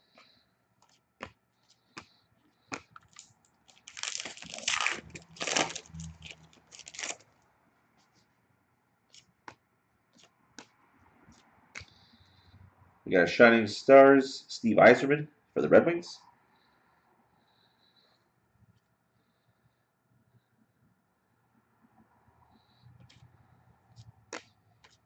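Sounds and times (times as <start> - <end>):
wrapper crinkling and tearing: 3.0 - 7.2.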